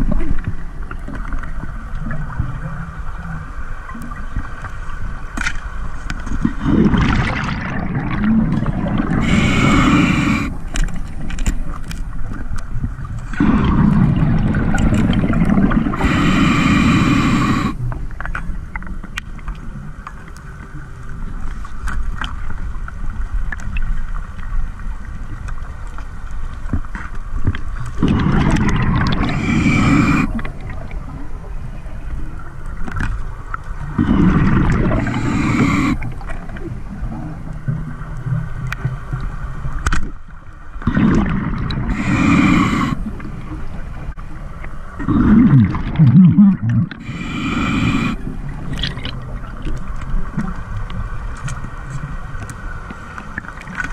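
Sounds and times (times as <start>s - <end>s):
diver exhaling bubbles: 6.4s - 10.7s, 13.3s - 17.8s, 28.0s - 30.8s, 33.9s - 36.5s, 40.8s - 43.3s, 45.0s - 49.2s.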